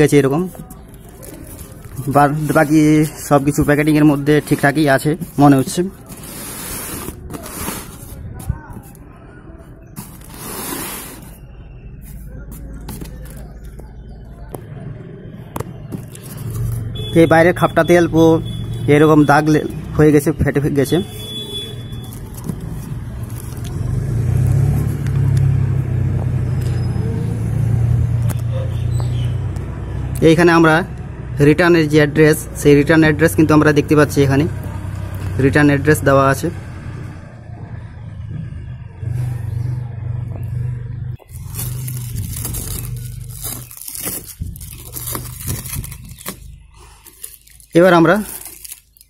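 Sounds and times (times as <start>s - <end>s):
cardboard parcel tearing open: 0.8s - 4.8s, 6.0s - 8.2s, 10.0s - 11.4s, 21.8s - 23.7s, 41.2s - 49.0s.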